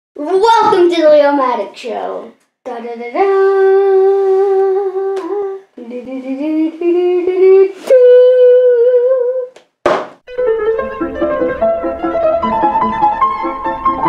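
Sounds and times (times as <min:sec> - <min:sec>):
child singing wordless tune: 0:00.2 - 0:09.5.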